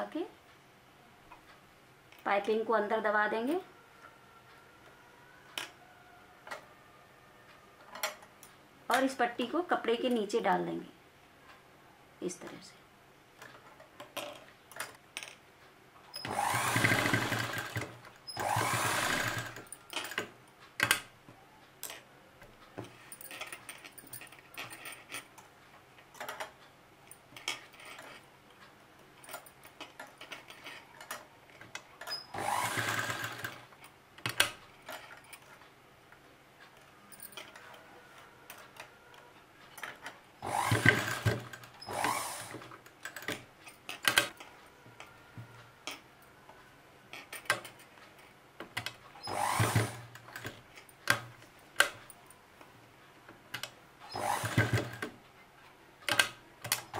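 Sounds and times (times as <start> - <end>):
sewing machine stitching: 16.2 - 21.0, 32.0 - 35.2, 40.4 - 43.4, 49.2 - 51.2, 54.0 - 55.2.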